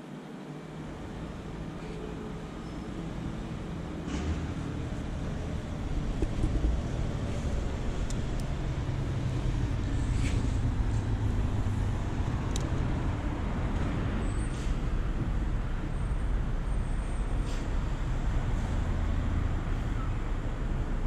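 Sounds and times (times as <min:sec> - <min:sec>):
distant road traffic: 0:00.0 - 0:21.0
wind on microphone: 0:05.1 - 0:13.7.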